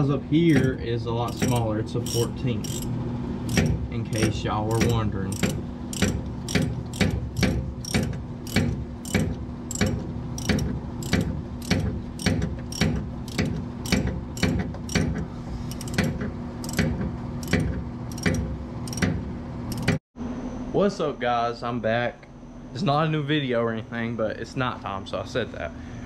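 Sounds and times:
steady low hum: 0.0 - 26.0
hand ratchet clicking: 0.5 - 2.9, 3.5 - 19.1, 19.7 - 20.0.

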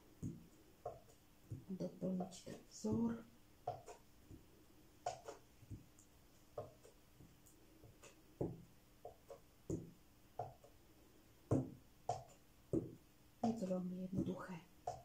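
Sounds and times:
stamp tapping on paper: 3.7 - 4.5.

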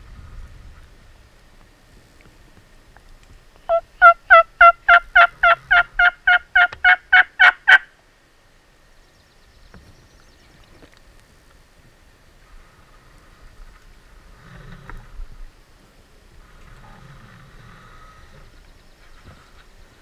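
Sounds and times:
turkey yelping: 3.7 - 7.9.

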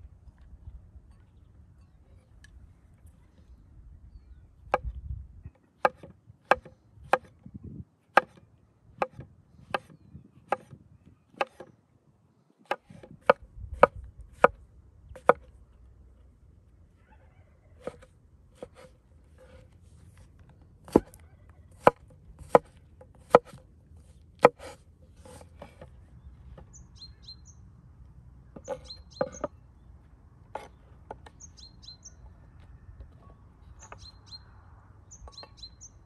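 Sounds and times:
knife chopping on wooden board: 5.8 - 7.3, 8.2 - 8.4, 9.0 - 9.9, 10.5 - 10.8, 11.4 - 11.7, 12.7 - 14.6, 15.2 - 15.5, 17.8 - 19.6, 20.9 - 21.2, 21.8 - 23.6, 24.4 - 25.9, 28.6 - 29.5.

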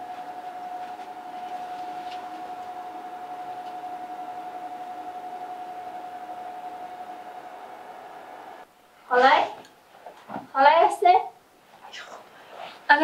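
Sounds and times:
steady single-pitched whine: 0.0 - 9.0.

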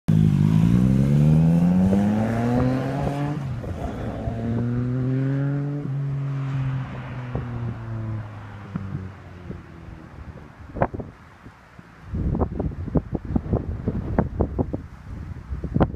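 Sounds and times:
motorcycle engine accelerating: 0.1 - 11.1.

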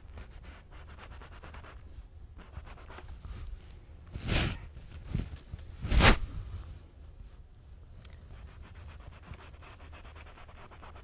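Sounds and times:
paintbrush scrubbing on canvas: 8.3 - 11.0.

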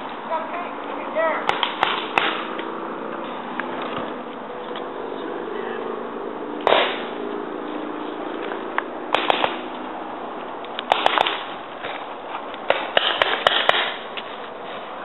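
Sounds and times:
paintball markers firing: 1.4 - 2.7, 6.6 - 7.2, 9.1 - 9.8, 10.7 - 12.0, 12.6 - 14.2.

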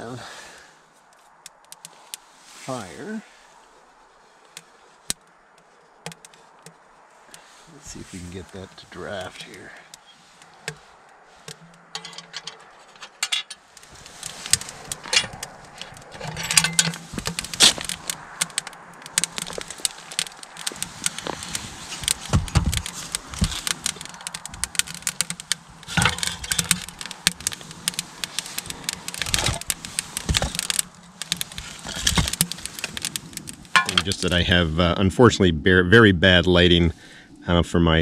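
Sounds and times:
kindling crackling and popping: 0.0 - 35.0
metallic rattles: 11.5 - 34.4.

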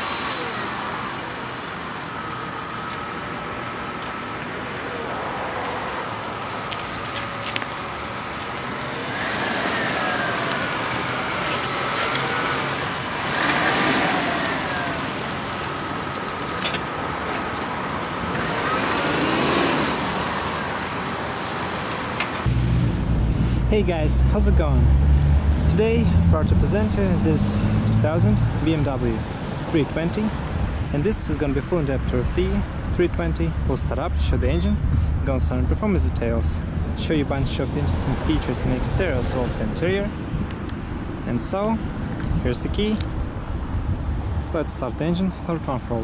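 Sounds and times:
car engine driving past: 22.4 - 28.5.

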